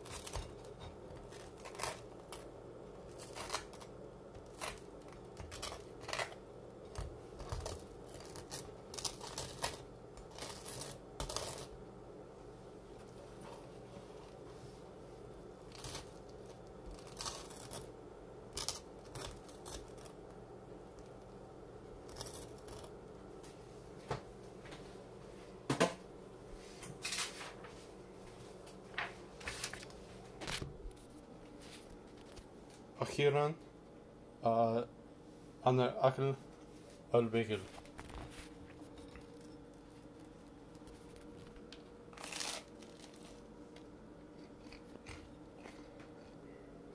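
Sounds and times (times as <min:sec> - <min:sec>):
knife scraping a bagel: 0:00.0 - 0:11.8, 0:22.0 - 0:22.9
faint steady hum: 0:00.0 - 0:46.9
knife scraping toasted bagel: 0:07.4 - 0:11.7.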